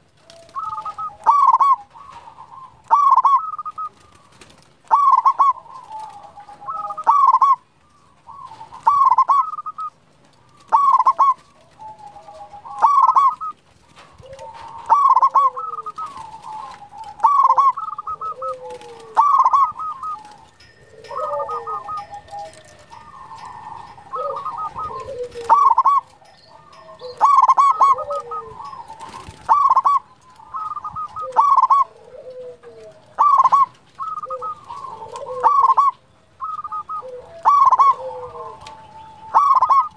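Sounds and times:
dove cooing: 0:00.0 - 0:39.9.

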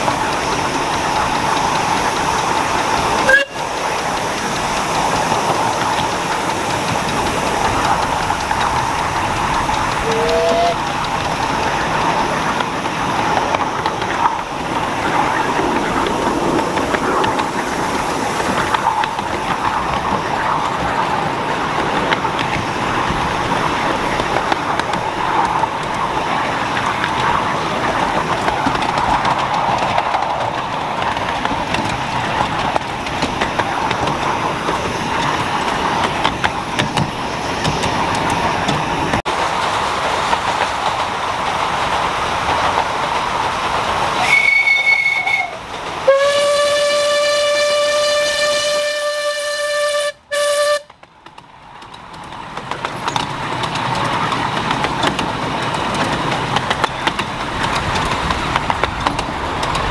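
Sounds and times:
train wheels rumbling on track: 0:00.0 - 0:59.9
short high train whistle: 0:03.2 - 0:03.6, 0:10.0 - 0:10.8, 0:44.2 - 0:50.9.

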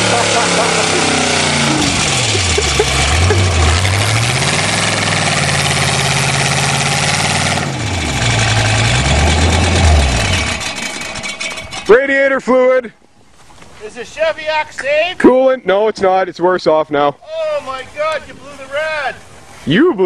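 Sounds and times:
car engine revving: 0:00.0 - 0:11.9
tyres spinning in mud: 0:00.0 - 0:11.9.

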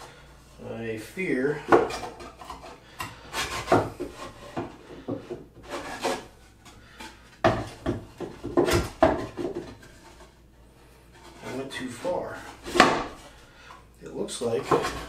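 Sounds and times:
wood scraping and knocking: 0:01.6 - 0:10.4, 0:11.1 - 0:13.4, 0:14.4 - 0:15.0.

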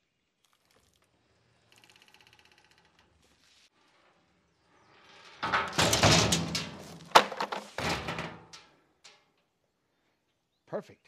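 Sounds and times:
metal clatter: 0:05.1 - 0:09.4
metal toolbox scraping and sliding: 0:05.4 - 0:08.5
sawhorse knocked over: 0:05.4 - 0:08.6
metal toolbox banging onto gravel: 0:05.4 - 0:09.2.

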